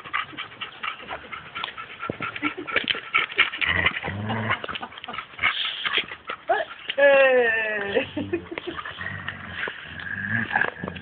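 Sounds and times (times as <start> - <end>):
dog growling low: 3.6 - 4.9, 8.0 - 11.0.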